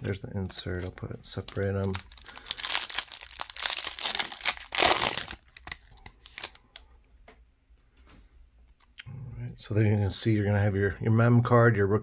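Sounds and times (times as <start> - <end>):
foil wrapper tearing and crinkling: 1.3 - 6.6.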